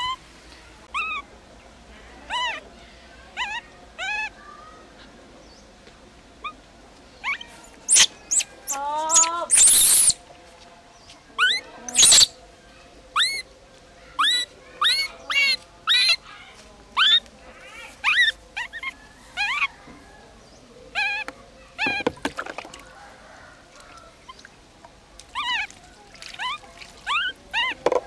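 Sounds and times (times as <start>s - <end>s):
baby monkey distress calls: 0.9s - 1.2s, 2.3s - 2.6s, 3.4s - 4.4s, 7.2s - 10.2s, 11.4s - 12.4s, 13.1s - 13.5s, 14.1s - 16.3s, 17.0s - 19.8s, 20.9s - 22.1s, 25.3s - 25.8s, 26.4s - 27.8s.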